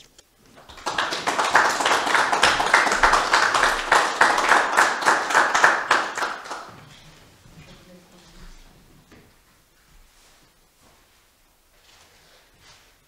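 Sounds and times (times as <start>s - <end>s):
people clapping: 0.4s - 7.2s.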